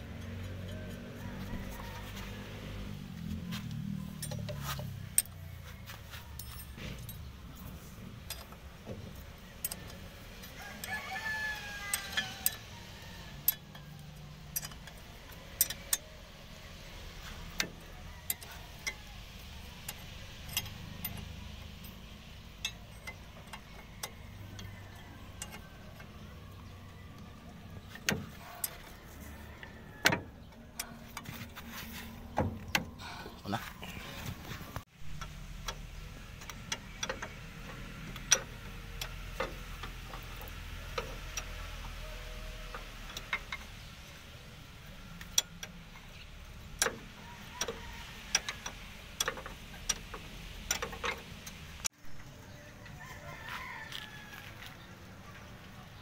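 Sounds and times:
rooster crowing: 0.7 - 4.7, 9.4 - 14.2, 23.6 - 27.6, 28.2 - 31.0, 47.1 - 48.8, 52.8 - 55.2
wrench clicking on metal: 6.4 - 16.1, 17.4 - 31.6, 45.2 - 51.9.

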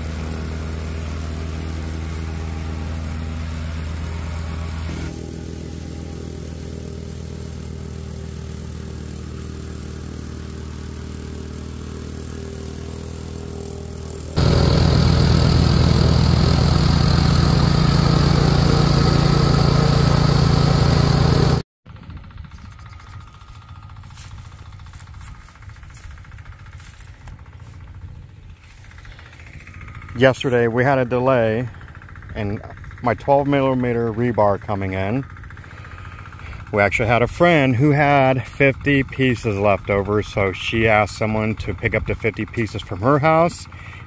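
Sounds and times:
plate compactor engine running: 0.0 - 44.0
plate vibrating over gravel: 22.4 - 37.3.

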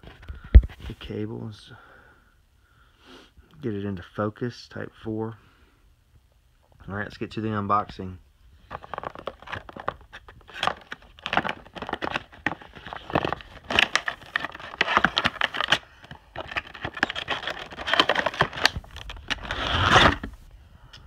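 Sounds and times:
cardboard and plastic packaging crinkling: 8.6 - 20.4
packaging sliding scrape: 8.7 - 20.4.

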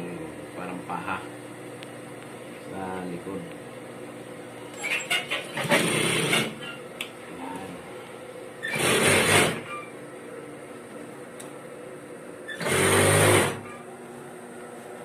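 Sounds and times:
sewing machine stitching: 5.0 - 6.6, 8.6 - 9.7, 12.5 - 13.7.

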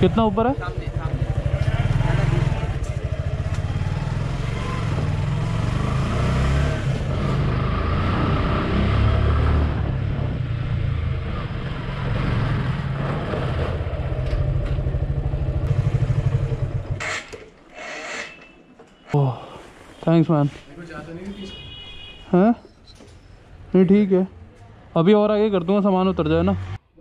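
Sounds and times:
motorcycle engine running: 0.0 - 6.0, 13.0 - 17.0.

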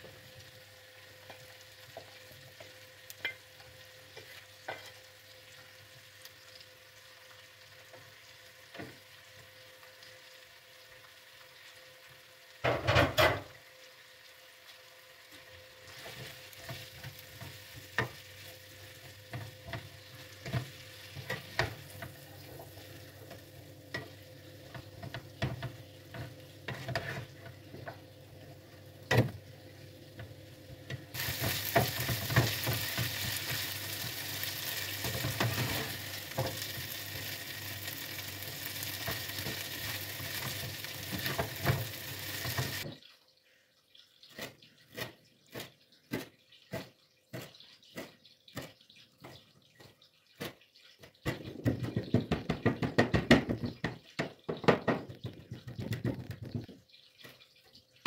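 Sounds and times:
vegetables sizzling in oil: 0.0 - 43.1.

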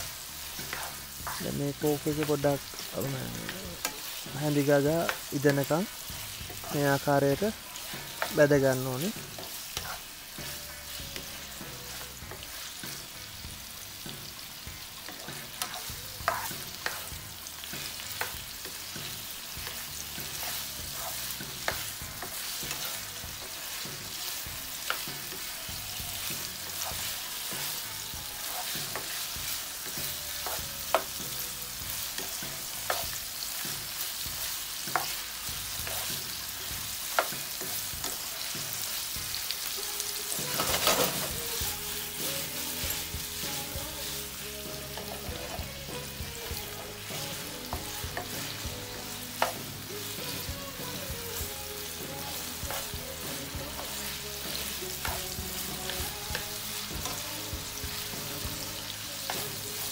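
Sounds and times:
spatula scraping a pan: 0.0 - 1.6, 9.2 - 13.2, 15.0 - 27.8, 28.4 - 38.7, 40.3 - 57.2
meat sizzling in oil: 0.0 - 59.9.

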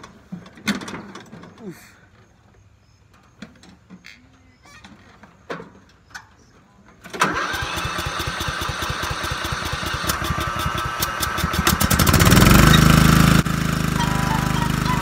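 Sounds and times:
lawnmower engine starting up: 7.0 - 15.0.

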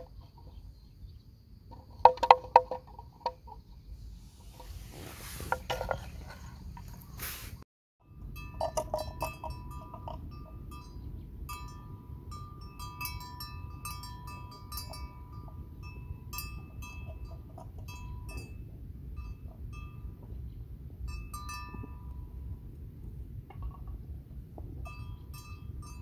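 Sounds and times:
steady low rumble: 3.9 - 26.0
small metal bell ringing: 8.0 - 20.2, 21.1 - 22.5, 24.8 - 26.0.

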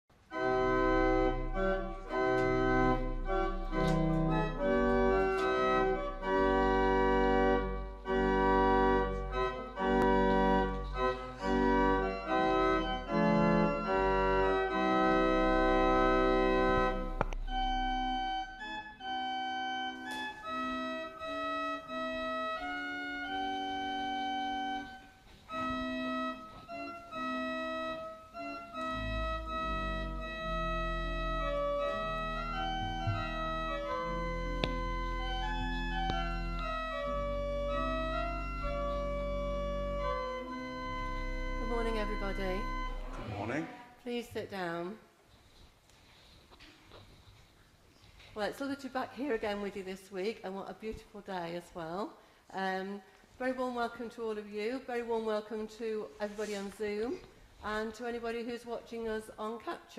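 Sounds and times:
church organ chords: 0.2 - 43.6
deep organ bass pedal note: 0.4 - 18.7, 28.8 - 43.6.

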